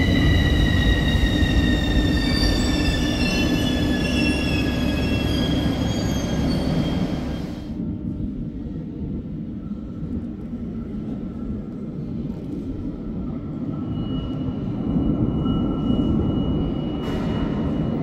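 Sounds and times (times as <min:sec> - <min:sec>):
train wheels rumbling on rail: 0:00.0 - 0:09.2, 0:09.8 - 0:18.0.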